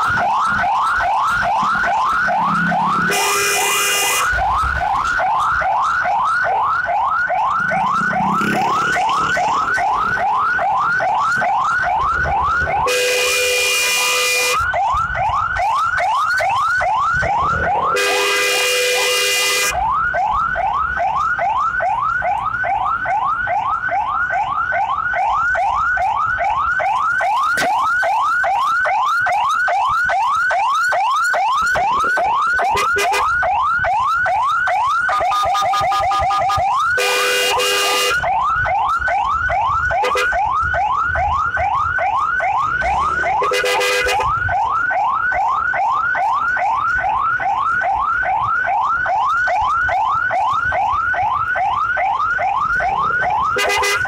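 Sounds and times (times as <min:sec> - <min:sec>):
ambulance siren yelping: 0:00.0 - 0:54.0
scooter horn honking: 0:03.1 - 0:04.2, 0:12.9 - 0:14.5, 0:18.0 - 0:19.7, 0:32.8 - 0:33.3, 0:37.0 - 0:38.1, 0:43.4 - 0:44.2, 0:53.6 - 0:54.0.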